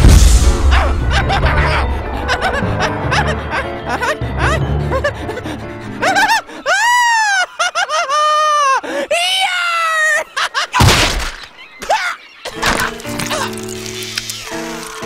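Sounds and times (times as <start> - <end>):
loud crash: 0.0 - 3.8.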